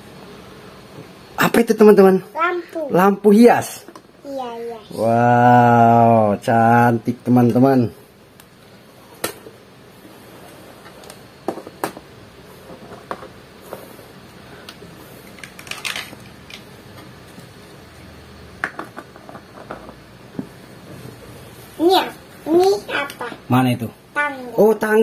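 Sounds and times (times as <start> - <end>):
plastic toy pieces clicking: 15.3 - 16.6.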